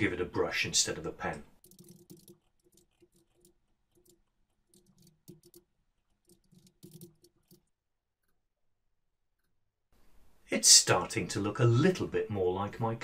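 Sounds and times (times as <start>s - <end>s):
faint keyboard typing: 1.6s - 8.4s.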